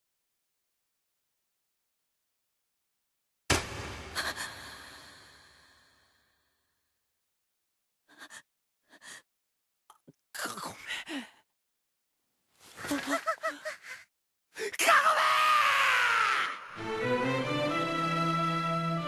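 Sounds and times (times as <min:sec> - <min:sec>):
young man gasping and groaning: 0:14.6 - 0:14.9
young man screaming: 0:14.8 - 0:16.8.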